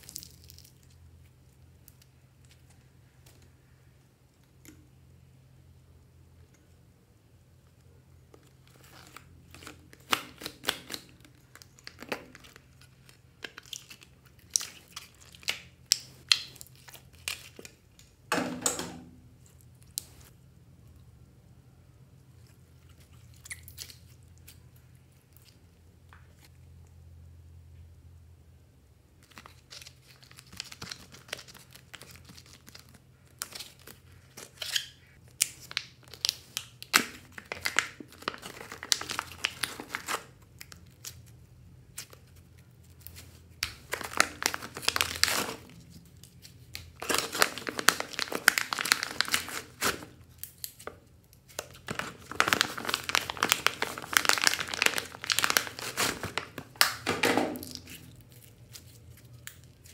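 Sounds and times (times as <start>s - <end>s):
plastic pouch crinkling: 8.3s - 17.8s, 29.2s - 41.2s, 42.0s - 59.9s.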